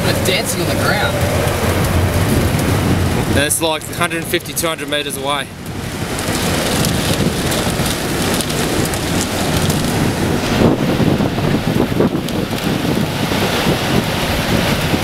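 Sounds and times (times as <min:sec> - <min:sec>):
rain: 0:00.0 - 0:15.0
storm wind: 0:00.0 - 0:15.0
wind buffeting microphone: 0:00.0 - 0:15.0.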